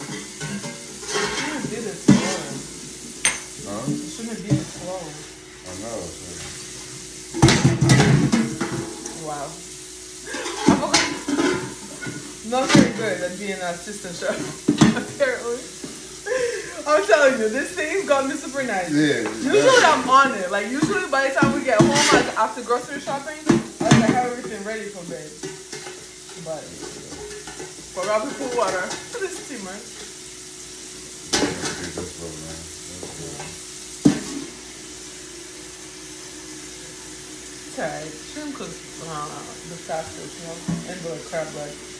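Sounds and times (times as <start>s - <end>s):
metal pot clanking: 0.0s - 3.6s, 10.3s - 13.1s, 25.2s - 30.2s
pots and utensils clattering: 0.0s - 4.8s, 6.3s - 9.2s, 10.2s - 30.2s, 31.1s - 35.8s
faint steady hiss: 0.0s - 41.9s.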